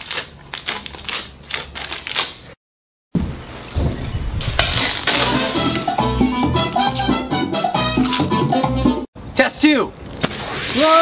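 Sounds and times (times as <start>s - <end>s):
salsa music: 5.2s - 9.1s.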